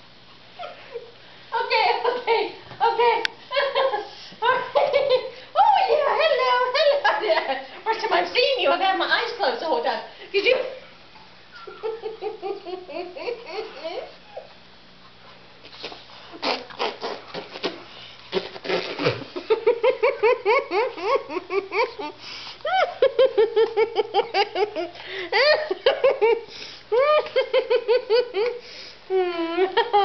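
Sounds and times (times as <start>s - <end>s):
woman laughing hard: 3.5s - 5.4s, 11.6s - 14.5s, 19.0s - 30.0s.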